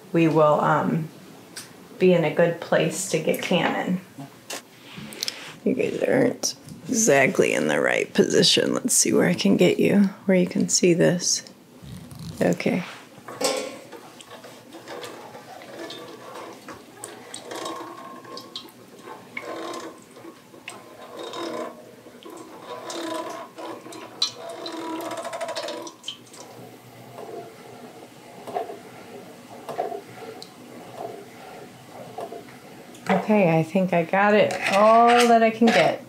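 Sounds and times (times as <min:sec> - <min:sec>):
food strainer churning: 0:13.8 - 0:34.9.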